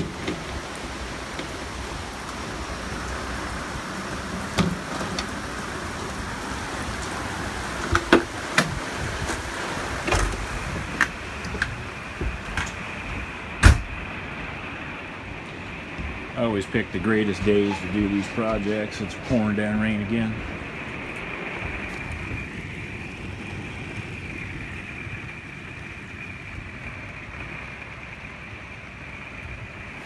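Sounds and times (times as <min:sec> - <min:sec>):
steady rain falling: 0:00.0 - 0:30.0
loud thud: 0:13.6 - 0:14.0.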